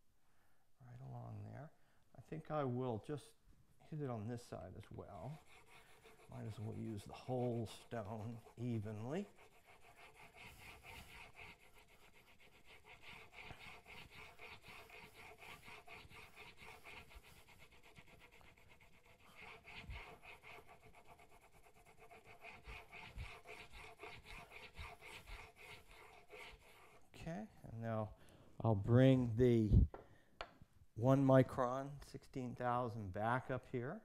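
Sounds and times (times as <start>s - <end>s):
chisel scraping on whetstone: 5.0s - 27.1s.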